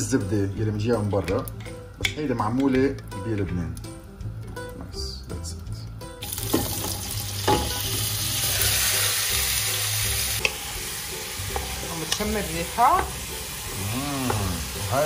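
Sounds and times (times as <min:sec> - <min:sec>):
meat sizzling in a pot: 0:06.2 - 0:15.0.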